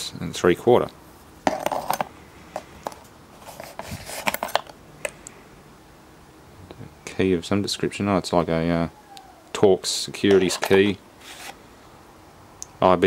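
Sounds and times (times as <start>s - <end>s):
metal parts clinking and rattling: 10.3s - 10.9s.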